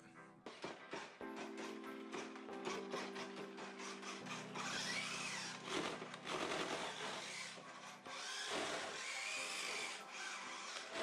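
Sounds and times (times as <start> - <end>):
toy car motor grinding rattle: 0.9 - 11.0
faint motor whine: 2.6 - 11.0.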